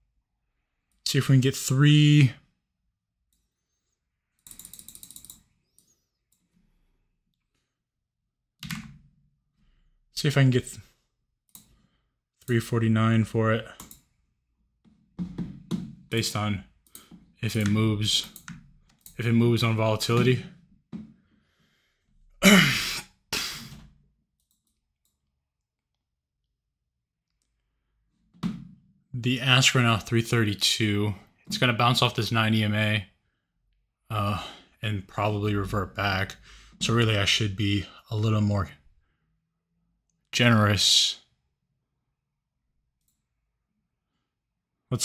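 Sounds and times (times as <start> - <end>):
computer mouse clicking: 4.3 - 6.6, 11.5 - 12.6, 13.7 - 14.2, 16.8 - 19.3, 24.4 - 25.9
man sighing: 22.4 - 23.8.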